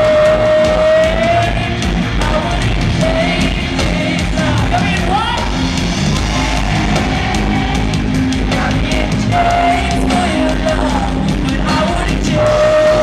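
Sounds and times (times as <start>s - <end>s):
woman singing: 0.0s - 5.0s, 8.4s - 13.0s
drum and cymbal hits: 0.0s - 13.0s
pop-rock band playing: 0.0s - 13.0s.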